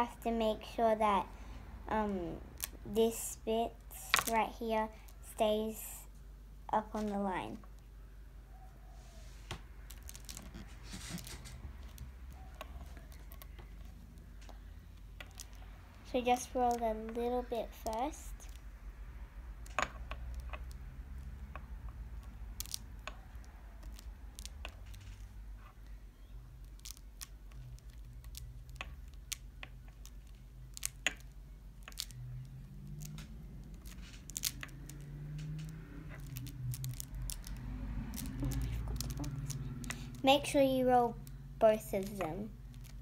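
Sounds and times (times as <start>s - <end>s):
low steady hum: 0.0s - 43.0s
fingers clicking on wax: 19.6s - 40.2s.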